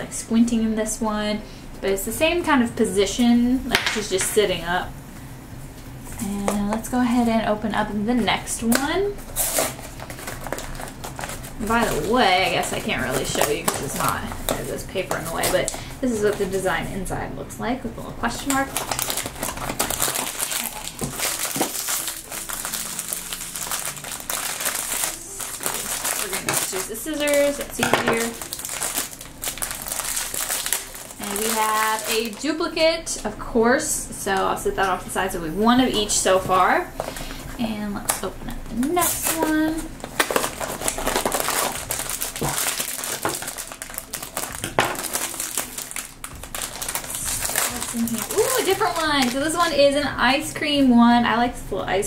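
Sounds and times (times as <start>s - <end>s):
foil pouch crinkling: 9.2s - 16.6s, 18.4s - 32.5s, 39.0s - 49.7s.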